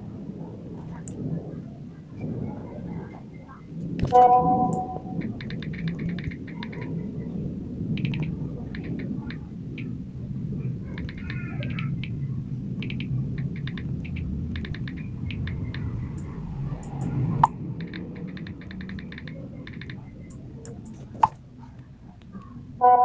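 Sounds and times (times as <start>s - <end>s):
steady low rumble: 0.0s - 22.9s
phone keyboard tapping clicks: 4.0s - 6.9s, 8.0s - 9.9s, 12.8s - 15.9s, 17.8s - 21.4s.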